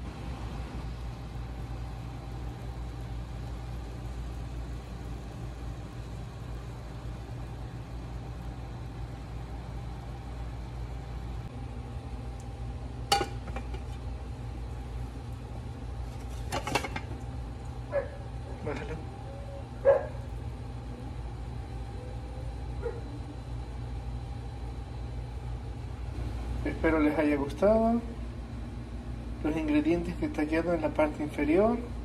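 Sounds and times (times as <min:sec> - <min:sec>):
steady low hum: 0:00.0 - 0:32.0
frying in oil: 0:00.8 - 0:25.2
plate clattering on pan: 0:13.1 - 0:14.0, 0:16.2 - 0:17.1.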